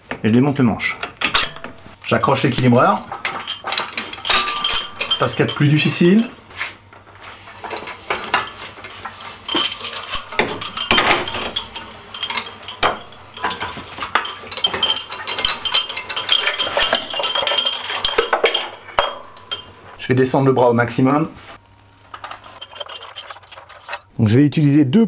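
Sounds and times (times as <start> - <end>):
steel chains clinking and rattling: 1.2 - 6.6, 7.5 - 20.0, 22.1 - 24.1.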